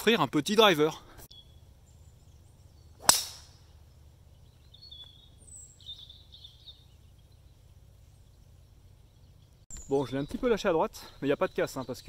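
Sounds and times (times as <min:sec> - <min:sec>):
golf driver striking ball: 0:03.0 - 0:03.6.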